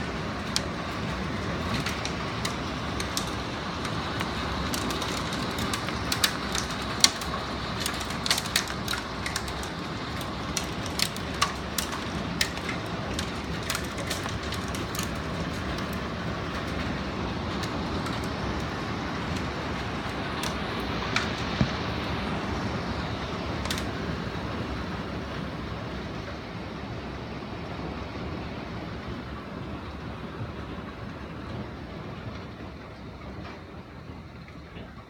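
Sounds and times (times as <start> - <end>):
hail ticking on wooden deck: 0.0 - 26.3.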